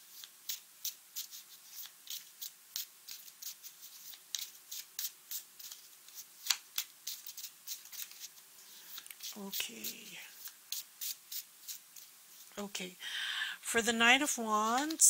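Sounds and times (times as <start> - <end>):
cards snapping and rustling: 4.1 - 8.3.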